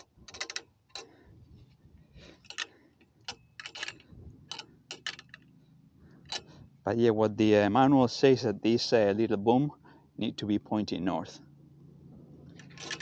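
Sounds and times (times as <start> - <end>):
light clicks and taps on metal: 0.0 - 1.2, 2.2 - 5.5.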